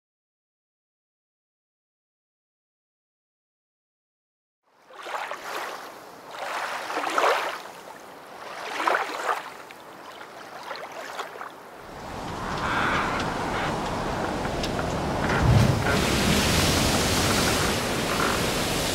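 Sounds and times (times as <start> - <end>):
waves washing up beach: 4.8 - 18.9
wind rumbling on microphone: 11.8 - 18.9.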